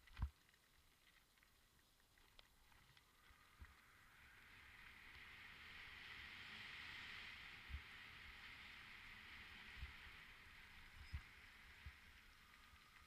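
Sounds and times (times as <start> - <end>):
bike tyres hissing on trail: 3.0 - 13.0.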